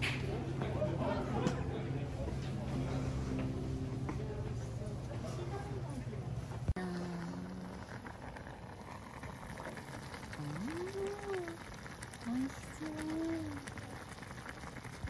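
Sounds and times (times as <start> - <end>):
broth simmering and bubbling: 0.0 - 15.0.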